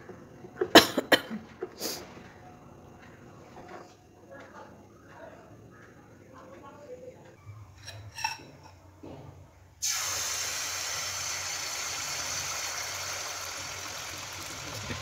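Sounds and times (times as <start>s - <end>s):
batter sizzling in hot oil: 9.8s - 15.0s.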